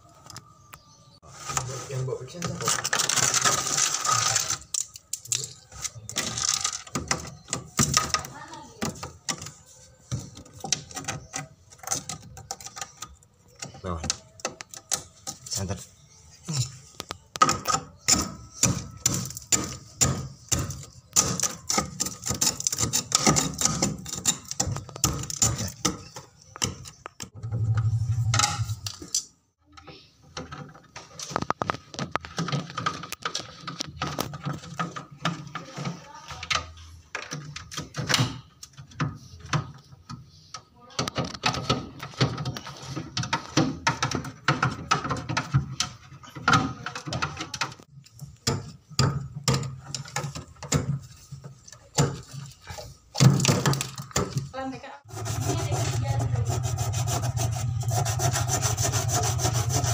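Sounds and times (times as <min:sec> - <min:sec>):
low hum: 0:27.4 - 0:29.1, 0:55.1 - 0:59.9
screwdriver scraping metal plate: 0:55.1 - 0:59.9.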